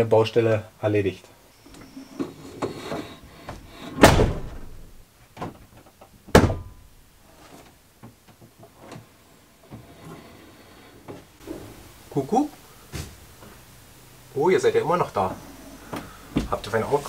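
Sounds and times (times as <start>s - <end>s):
van doors slamming: 3.9s - 5.6s, 6.2s - 6.9s.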